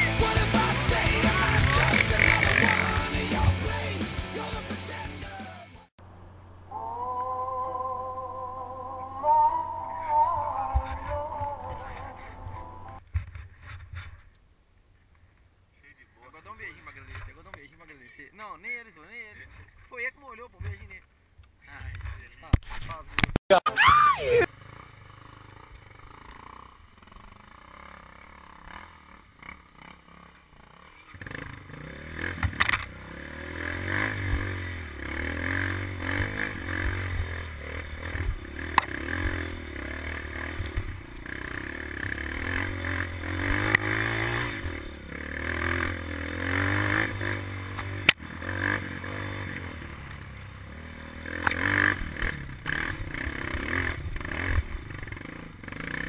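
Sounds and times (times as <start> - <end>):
dirt bike engine revving: 0.0 - 5.9, 24.1 - 56.0
bike clattering over ruts: 24.5 - 33.2.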